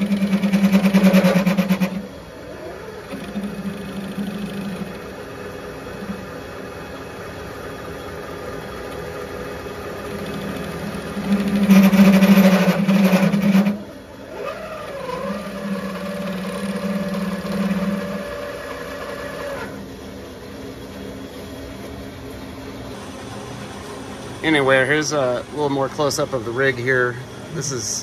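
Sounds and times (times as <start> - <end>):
lathe tool cutting pipe: 0.0 - 5.2, 10.0 - 19.8
motor whine: 0.0 - 28.0.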